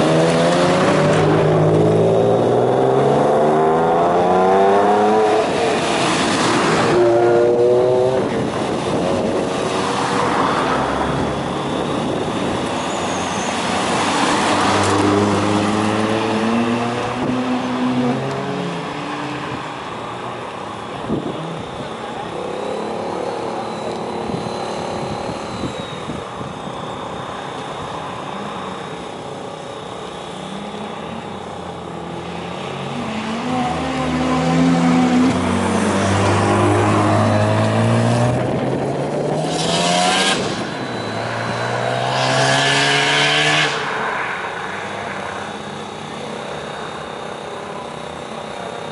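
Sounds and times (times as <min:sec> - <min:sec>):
car engines accelerating: 0:00.0 - 0:48.9.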